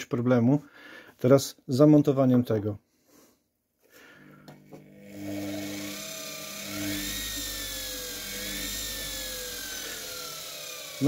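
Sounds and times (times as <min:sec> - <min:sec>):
electric motor whine: 0:04.0 - 0:11.0.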